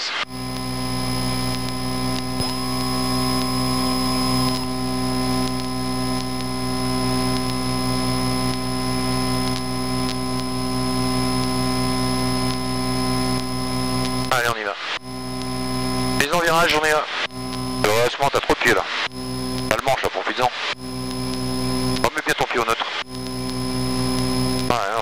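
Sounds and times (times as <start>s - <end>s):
higher steady tone: 0.3s - 9.4s.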